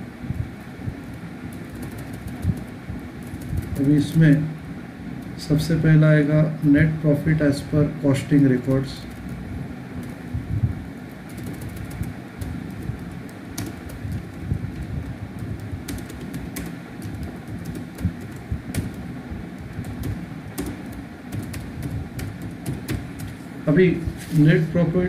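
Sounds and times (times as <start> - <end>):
low background noise: 0.0 - 25.0
keyboard keys clicking: 1.5 - 4.4, 11.2 - 19.0, 19.6 - 23.4.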